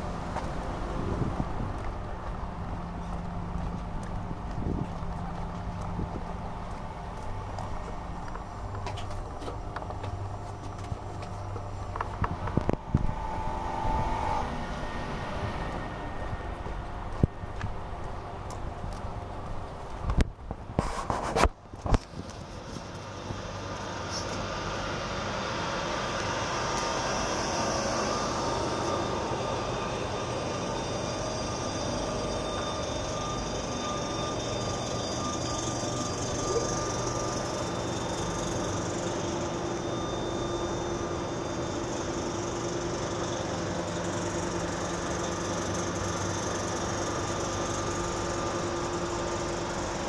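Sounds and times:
held whining tones: 0.0s - 20.7s, 21.6s - 50.0s
train equipment hum: 0.0s - 50.0s.

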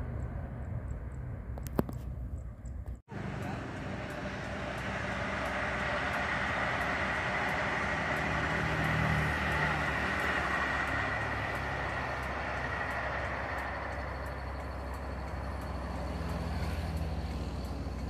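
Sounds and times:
passing train: 0.0s - 18.0s.

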